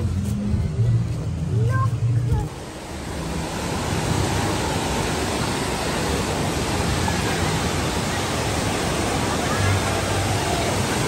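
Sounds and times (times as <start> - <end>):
waterfalls: 0.0 - 11.0
waves breaking on sand: 2.5 - 11.0.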